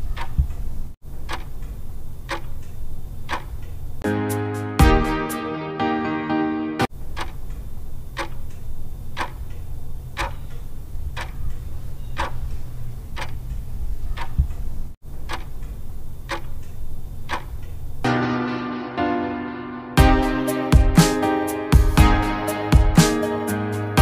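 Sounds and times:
clock ticking: 0.0 - 0.6, 1.2 - 3.7, 7.1 - 13.5, 14.1 - 14.6, 15.2 - 17.8.

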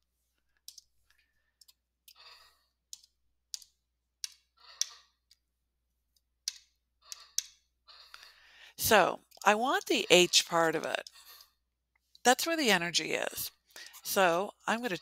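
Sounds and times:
computer mouse clicks: 0.6 - 0.9, 2.9 - 5.0, 6.4 - 7.6
soft breaths: 7.0 - 8.8.

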